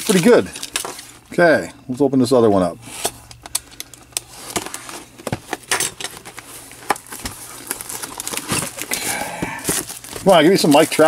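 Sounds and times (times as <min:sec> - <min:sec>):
plastic wrap crackling: 0:00.0 - 0:01.2, 0:03.8 - 0:11.0.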